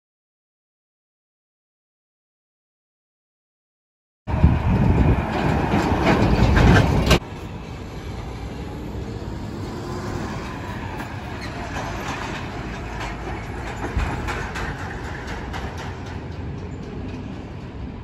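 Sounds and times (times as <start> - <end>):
hum of passing traffic: 4.3 - 18.0
truck passing with low rumble: 4.3 - 18.0.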